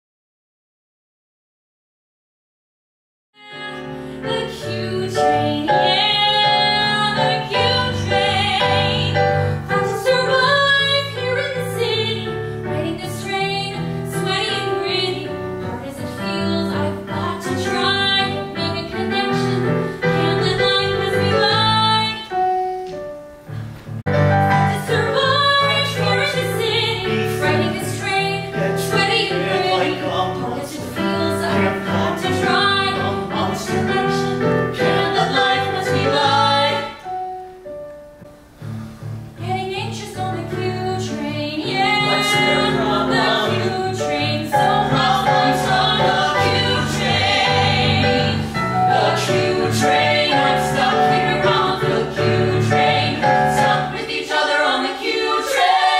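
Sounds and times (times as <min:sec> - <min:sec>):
woman singing: 0:03.4 - 0:22.4, 0:24.6 - 0:37.0, 0:39.4 - 0:47.0
keyboard accompaniment: 0:03.4 - 0:55.9.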